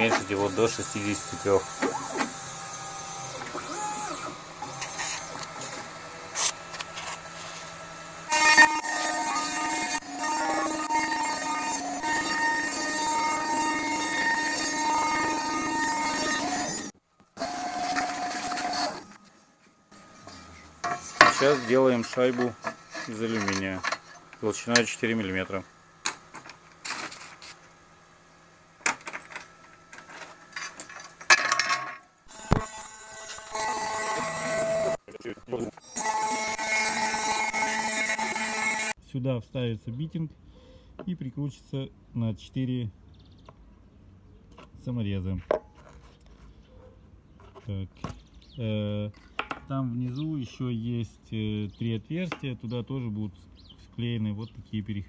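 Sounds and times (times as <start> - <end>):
gliding motor whirrs: 0.0 - 19.2
loud machine whine: 0.0 - 19.3, 32.3 - 35.0.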